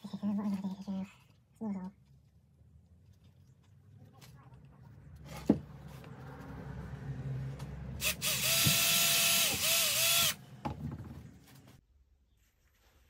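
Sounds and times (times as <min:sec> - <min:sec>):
cordless drill drilling rubber: 0:08.0 - 0:10.4.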